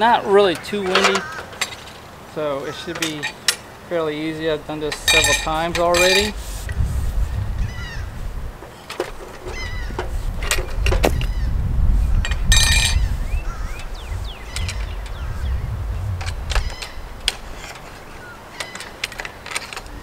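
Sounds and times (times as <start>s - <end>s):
metal hardware clicks and clanks: 0.5s - 2.0s, 4.8s - 6.4s, 18.6s - 20.0s
wind rumble on microphone: 4.4s - 20.0s
faint bird chirps: 13.0s - 17.2s.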